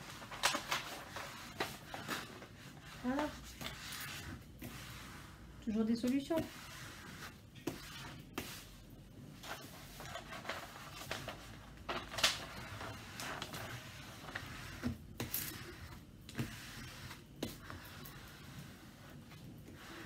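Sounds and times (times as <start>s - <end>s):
plastic tool rubbing plastic film: 9.4s - 20.0s.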